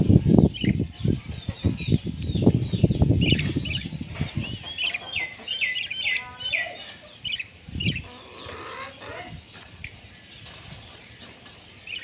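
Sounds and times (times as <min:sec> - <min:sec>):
budgerigars chirping: 0:01.4 - 0:09.6.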